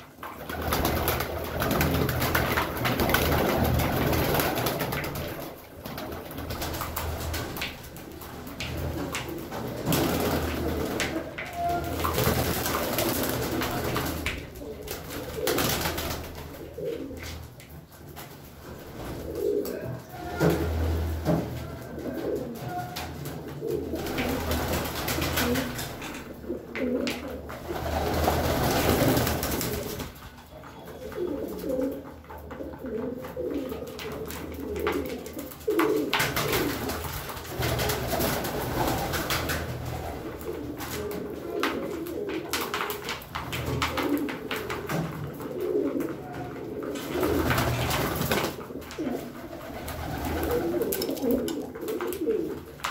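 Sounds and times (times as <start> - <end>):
pigeons cooing: 19.1 - 52.8.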